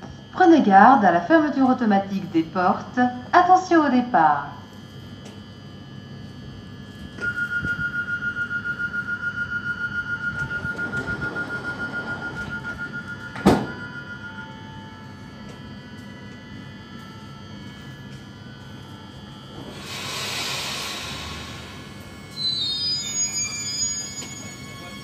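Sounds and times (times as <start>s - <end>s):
train door warning beeps: 7.1s - 25.0s
train door shutting thunk: 12.4s - 14.0s.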